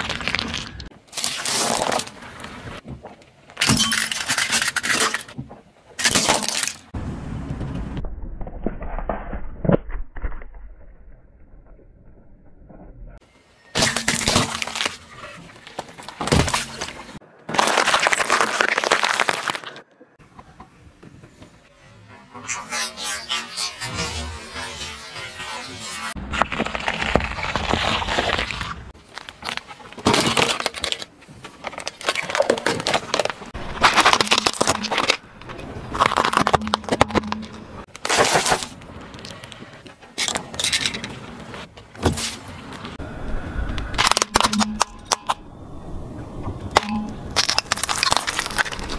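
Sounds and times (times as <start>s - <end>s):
plastic cracking under tyre: 13.8s - 19.8s, 26.3s - 39.6s, 44.0s - 45.3s, 46.7s - 48.9s
tyre crushing cucumbers: 13.8s - 19.8s, 31.6s - 38.7s, 46.7s - 48.9s.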